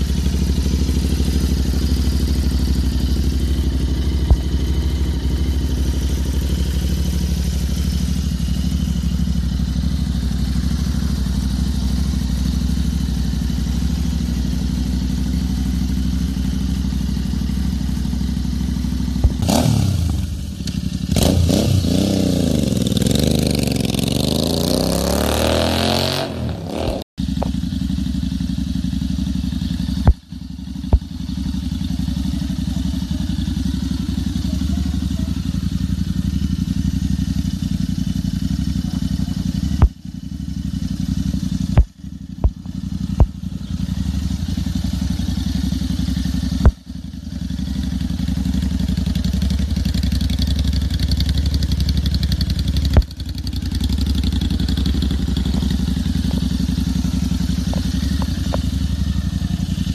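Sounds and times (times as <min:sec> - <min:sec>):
motorcycle accelerating: 0:00.0 - 0:59.9
motorcycle idling: 0:00.0 - 0:59.9.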